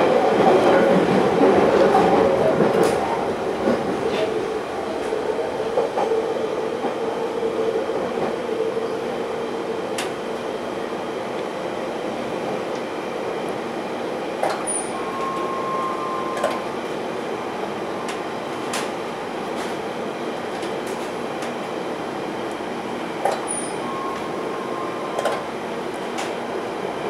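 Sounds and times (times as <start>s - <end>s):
train wheels rumbling on rail: 0.0s - 27.0s
rail-joint clacks: 14.4s - 15.5s, 16.4s - 16.6s, 23.2s - 24.3s, 25.2s - 25.5s.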